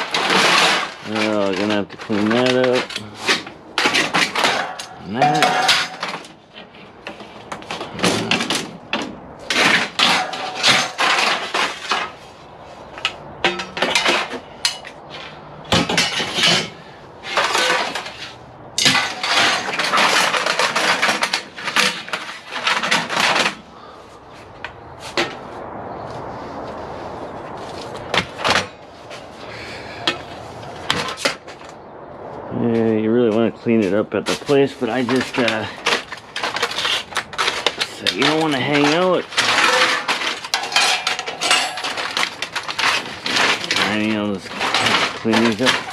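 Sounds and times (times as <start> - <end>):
aluminum scrap clattering: 0.0 - 24.0, 34.2 - 45.9.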